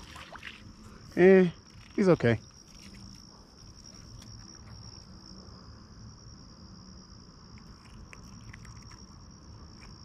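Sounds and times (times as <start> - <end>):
high-pitched insect chorus: 0.0 - 10.0.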